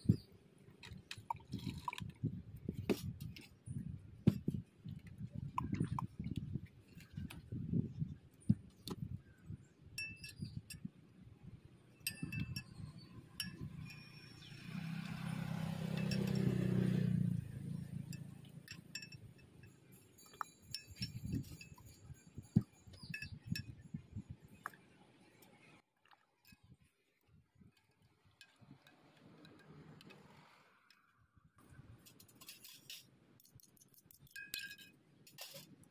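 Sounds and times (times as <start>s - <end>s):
glasses and utensils clinking: 12.0s - 14.3s, 18.1s - 23.9s, 34.2s - 35.6s.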